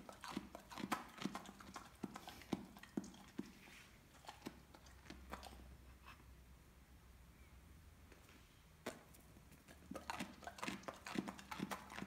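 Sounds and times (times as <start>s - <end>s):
dog crunching a carrot: 0.0s - 5.8s, 8.8s - 12.0s.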